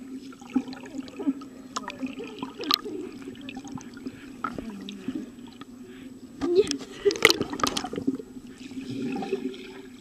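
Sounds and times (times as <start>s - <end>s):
underwater sloshing and bubbling: 0.0s - 10.0s
underwater clicks and pops: 6.7s - 8.0s.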